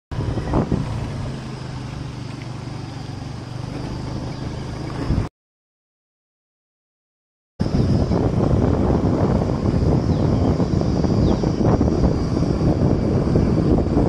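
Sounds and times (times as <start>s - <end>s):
motorbike engine running: 0.1s - 5.3s
road and wind noise: 0.1s - 5.3s, 7.6s - 14.0s.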